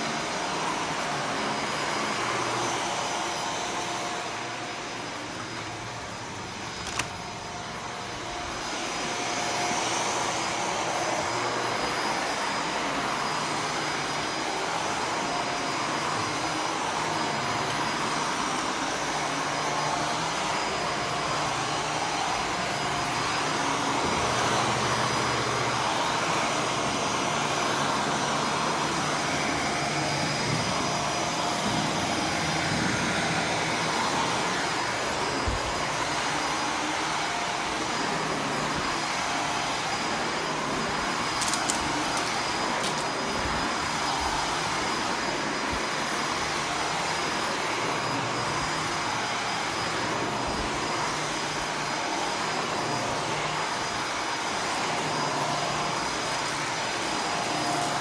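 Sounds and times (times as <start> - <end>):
vacuum cleaner on carpet: 0.0 - 58.0
vacuum cleaner clicks: 6.6 - 7.2, 41.2 - 43.2.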